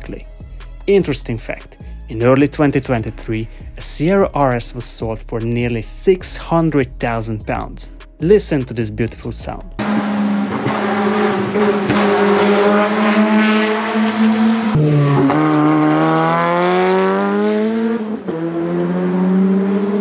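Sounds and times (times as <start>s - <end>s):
racing car engine: 9.8s - 20.0s.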